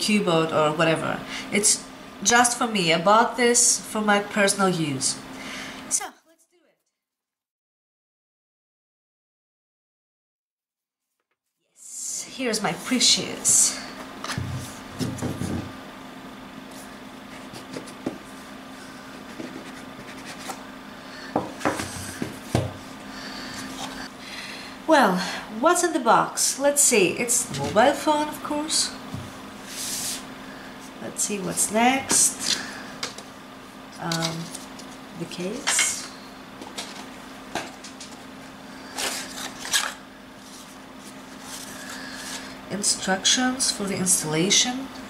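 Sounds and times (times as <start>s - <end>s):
low steady hum: 11.8s - 45.0s
paper rustles: 19.2s - 20.6s, 38.9s - 42.5s.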